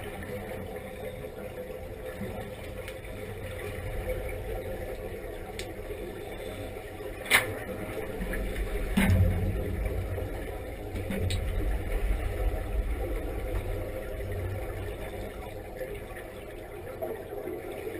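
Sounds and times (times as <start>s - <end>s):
low underwater rumble: 0.0s - 17.9s
exhaust air bubbling: 3.9s - 17.6s
low thump: 8.9s - 12.4s.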